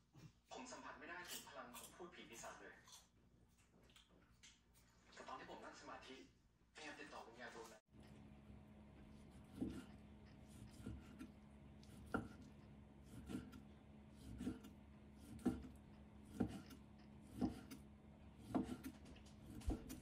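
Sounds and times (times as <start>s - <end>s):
knife slicing meat: 9.0s - 20.0s.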